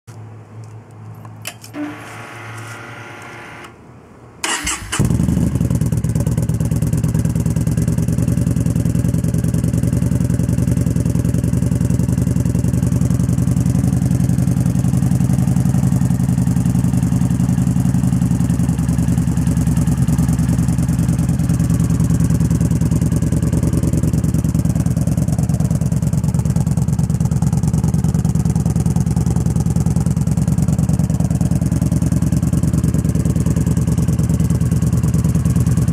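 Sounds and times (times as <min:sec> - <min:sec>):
motorcycle starter cranking: 0:04.4 - 0:05.4
motorcycle engine idling: 0:04.5 - 0:35.9.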